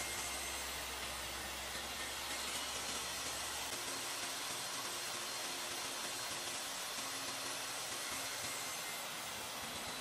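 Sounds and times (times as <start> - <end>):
table saw cutting wood: 0.0 - 10.0.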